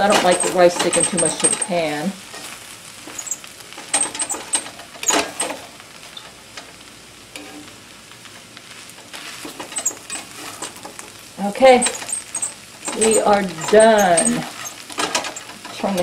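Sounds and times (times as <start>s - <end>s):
faint pan sizzle: 0.0s - 16.0s
spatula scraping skillet: 0.0s - 16.0s.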